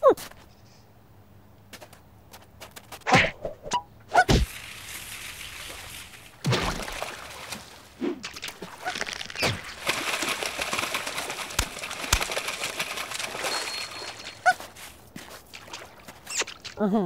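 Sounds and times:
cartoon water splashing: 4.1 - 16.9
fish slapping down: 4.3 - 16.8.

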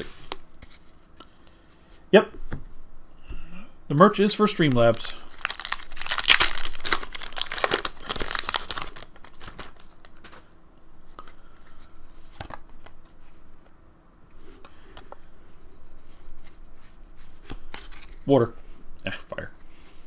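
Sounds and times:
cards rustling and clicking: 4.6 - 10.5, 11.1 - 13.4, 17.4 - 18.3
foil wrapper tearing and crinkling: 4.7 - 10.2.

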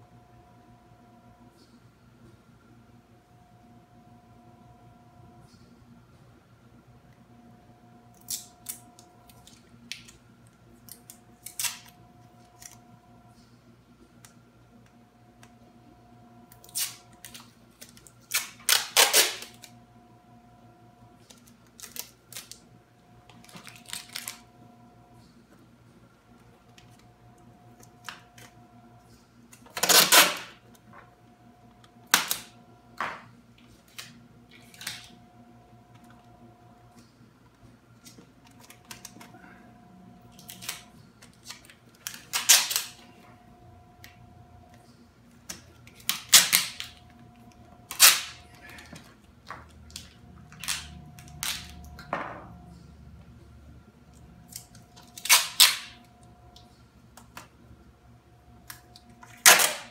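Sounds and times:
faint steady hum: 0.0 - 59.9
tape rustling and ripping: 10.8 - 12.8, 16.6 - 19.8, 21.3 - 22.6, 23.3 - 24.4, 29.5 - 30.6, 40.3 - 43.0, 45.5 - 47.0, 47.9 - 49.0, 49.8 - 51.8, 54.5 - 56.0, 59.2 - 59.9.

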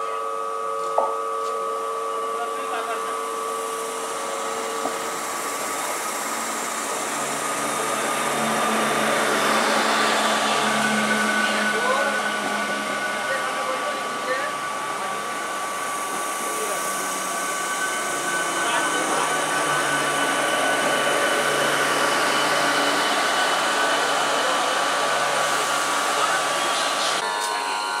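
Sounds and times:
electric train whine: 0.0 - 28.0
train wheels rushing on rail: 3.8 - 27.6.

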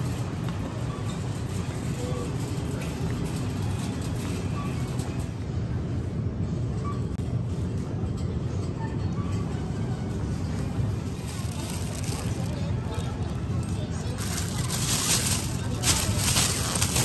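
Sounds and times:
shopping cart wheels rumbling: 0.0 - 17.0.

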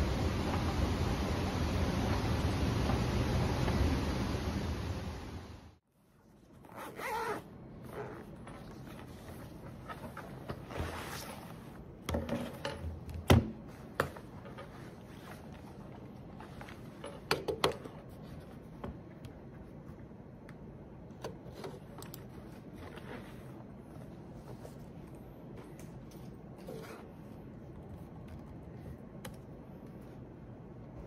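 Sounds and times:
fabric rustling: 5.8 - 12.8, 13.6 - 20.4, 21.4 - 31.0
laptop pulled from padded sleeve: 6.1 - 12.0, 21.5 - 25.2.

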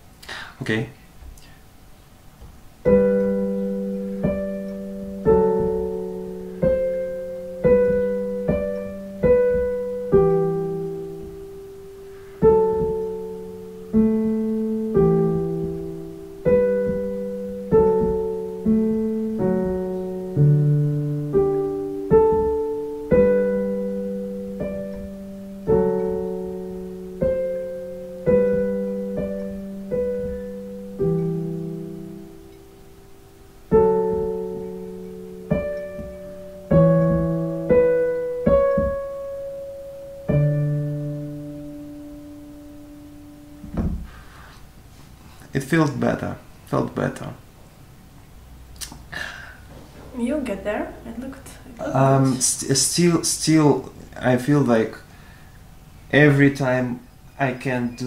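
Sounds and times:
digital piano chords: 2.6 - 48.7.

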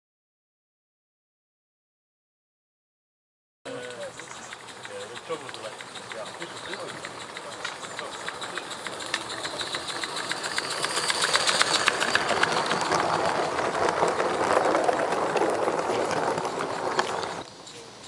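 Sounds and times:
model train wheels clicking: 3.7 - 18.0.

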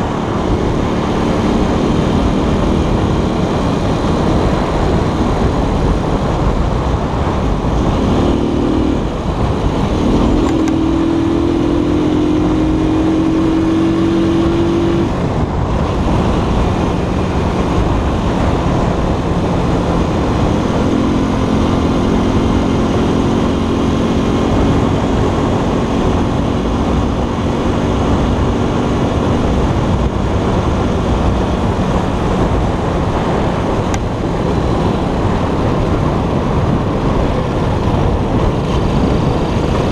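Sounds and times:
scooter engine running: 0.0 - 14.1
wind rush on microphone: 0.0 - 39.9.

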